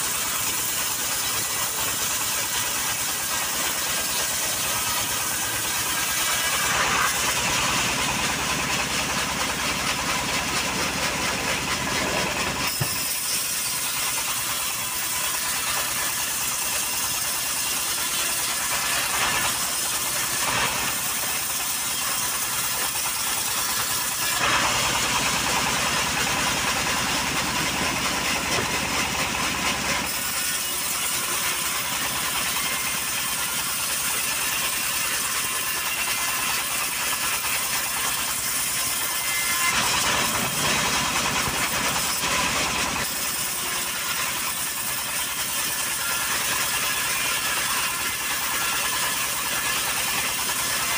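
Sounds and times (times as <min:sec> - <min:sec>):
band sawmill running: 0:00.0 - 0:50.9.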